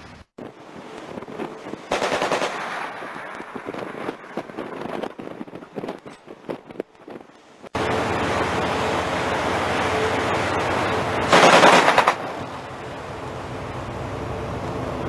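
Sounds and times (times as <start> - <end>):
wind and sea noise: 0.0 - 15.0
rapid machine-gun fire: 1.9 - 3.2, 11.3 - 12.4.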